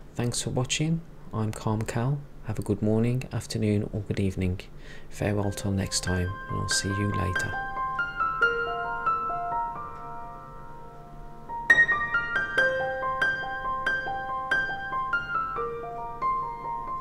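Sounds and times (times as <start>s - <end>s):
slow piano melody: 5.2s - 17.0s.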